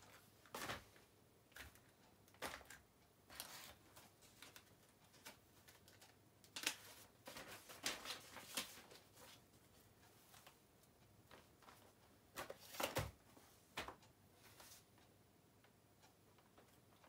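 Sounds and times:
paper rustling and shuffling: 0.0 - 1.0, 1.6 - 10.6, 11.3 - 13.2.

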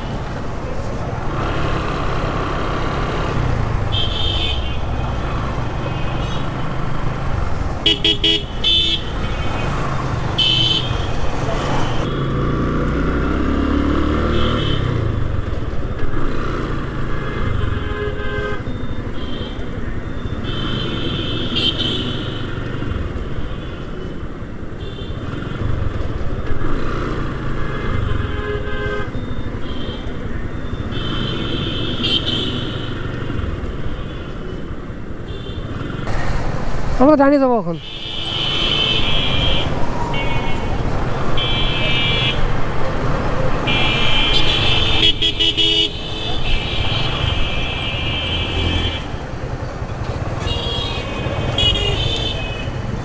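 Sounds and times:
vehicle horn toots: 41.4 - 42.5, 43.6 - 49.2, 50.4 - 52.8.

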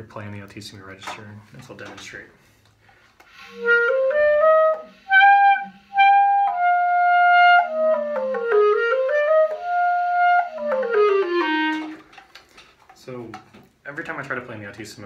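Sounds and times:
alto clarinet high notes and runs: 3.4 - 12.0.

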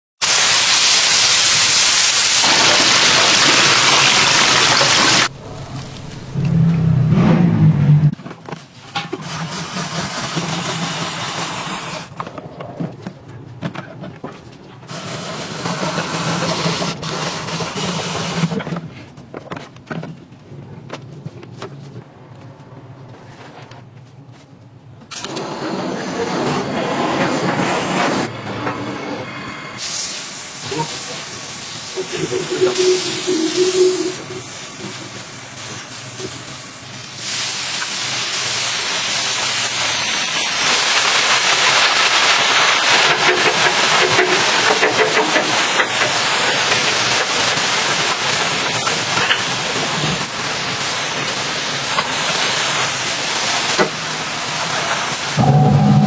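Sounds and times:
meat sizzling on a griddle: 0.2 - 5.3, 34.5 - 55.4
gas torch flame hissing: 29.8 - 41.2.

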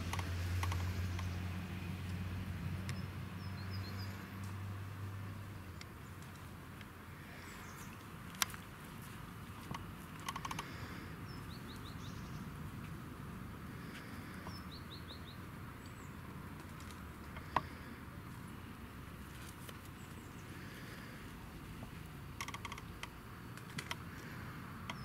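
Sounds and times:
sharp clicks: 0.0 - 1.4, 9.6 - 10.8, 22.4 - 25.0
small bird calling: 10.2 - 12.5.

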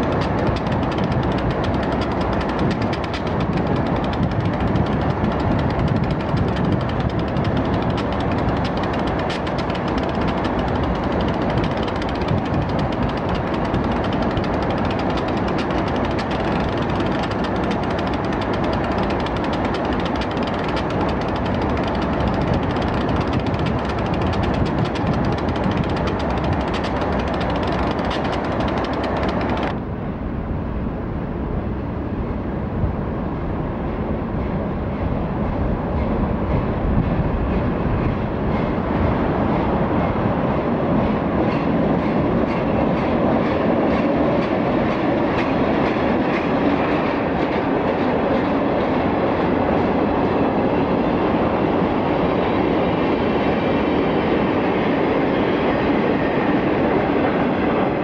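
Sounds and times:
wheels clicking over rail joints: 0.0 - 29.8
train wheels rumbling on rail: 0.0 - 58.0.

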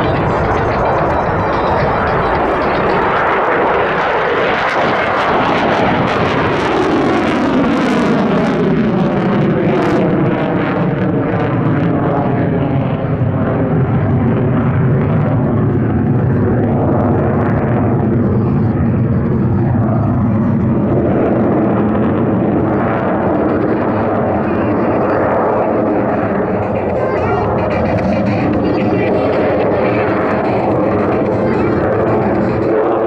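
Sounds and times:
aircraft engine flying past: 0.0 - 33.0.

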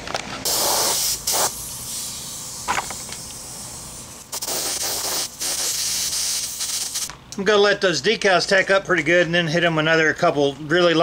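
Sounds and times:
paint spray gun hissing: 0.4 - 7.1.

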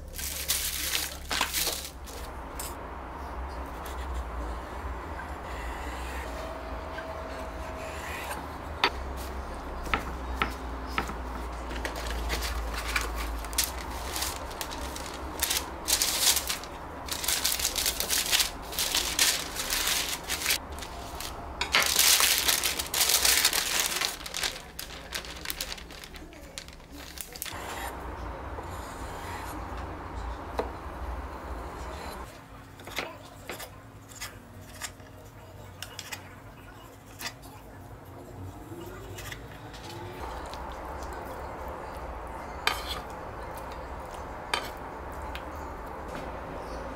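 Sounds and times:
paper crinkling and rustling: 0.0 - 2.8, 11.5 - 27.6.

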